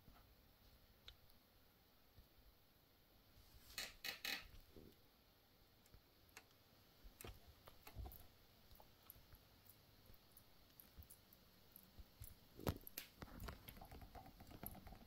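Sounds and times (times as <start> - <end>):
room hiss: 0.0 - 15.0
faint clicks and taps: 0.1 - 1.4, 5.8 - 15.0.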